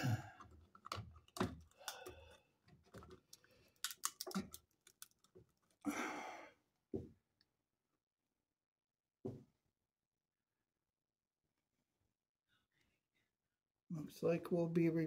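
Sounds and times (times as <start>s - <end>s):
wall socket clicking and knocking: 0.4s - 2.2s.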